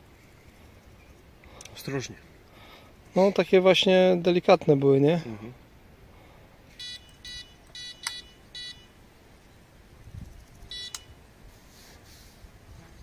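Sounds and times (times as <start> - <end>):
bite alarm beeps: 6.8 - 9.0, 10.7 - 11.2
sharp click: 8.0 - 8.3, 10.9 - 11.1.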